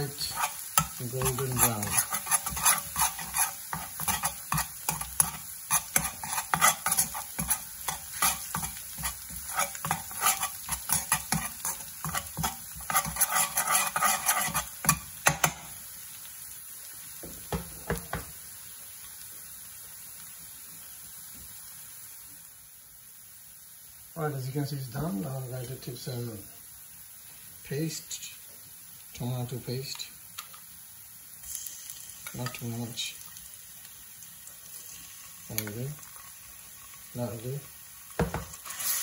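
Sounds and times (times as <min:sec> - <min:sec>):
metal spoon scraping a pan: 0:00.0 - 0:15.7, 0:38.3 - 0:39.0
garlic sizzling in oil: 0:00.0 - 0:39.0.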